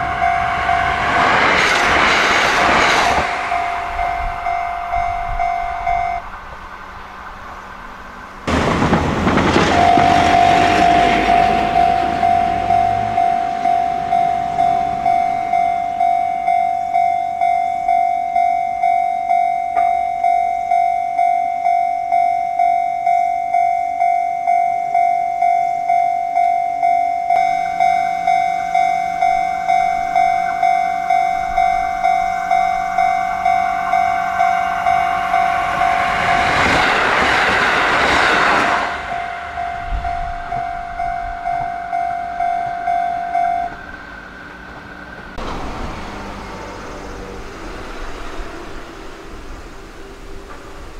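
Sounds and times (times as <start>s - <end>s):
level crossing bell ringing: 0.0s - 1.6s, 3.1s - 6.2s, 9.7s - 37.0s, 38.7s - 44.0s
train passing: 0.0s - 50.9s.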